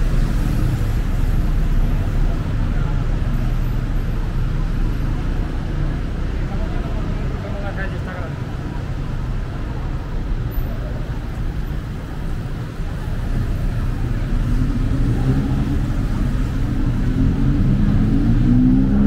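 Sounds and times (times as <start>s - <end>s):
low rumble of traffic: 0.0s - 19.0s
engine speeding up: 13.2s - 19.0s.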